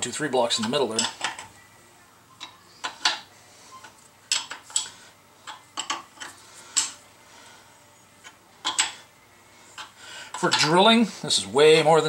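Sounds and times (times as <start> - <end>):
metal clamps clinking: 0.6 - 1.5.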